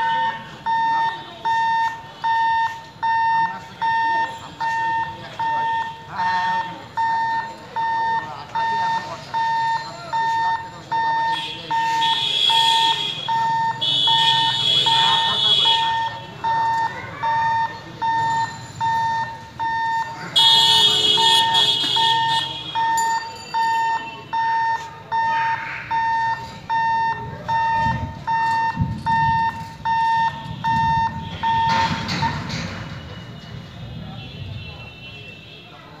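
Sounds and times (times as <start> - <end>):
level crossing alarm beeping: 0.0 - 33.5
passing vehicle engines rumbling: 0.0 - 36.0.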